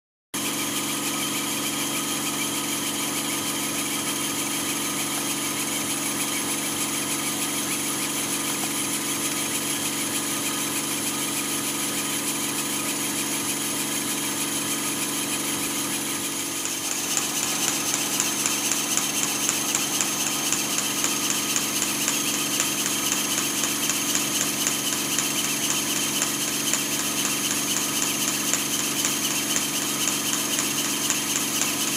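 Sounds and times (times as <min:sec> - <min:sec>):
model steam engine running: 0:00.4 - 0:31.9
fast even ticking beat: 0:16.5 - 0:31.9.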